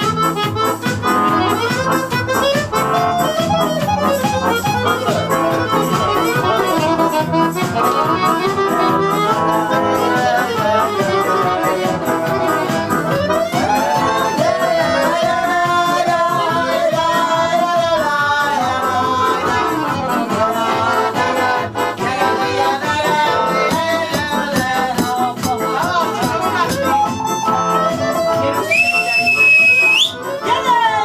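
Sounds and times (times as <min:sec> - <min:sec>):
strummed guitar: 0:00.0 - 0:28.7
accordion: 0:00.0 - 0:31.0
person singing: 0:04.5 - 0:28.6.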